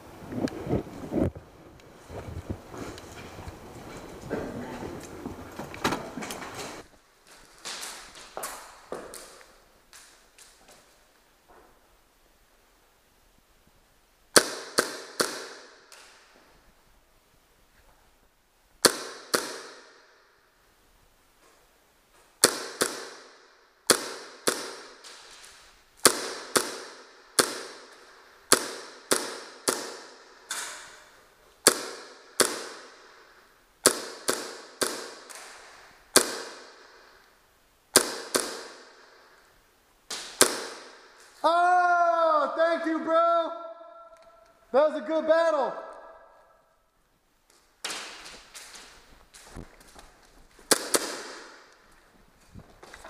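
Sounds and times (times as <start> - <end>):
airsoft guns firing: 14.3 - 16.2, 18.8 - 20.3, 22.4 - 39.5, 40.1 - 41.3, 47.8 - 48.9, 50.6 - 51.8.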